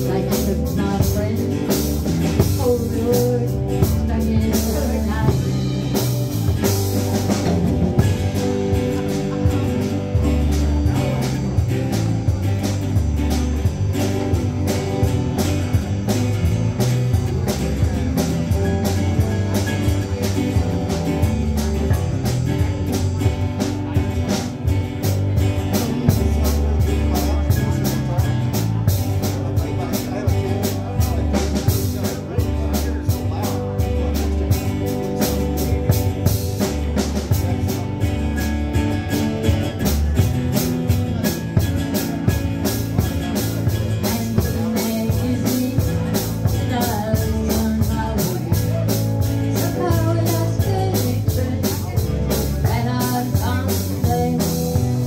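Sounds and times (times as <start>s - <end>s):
drum kit beat: 0.0s - 55.0s
live band playing: 0.0s - 55.0s.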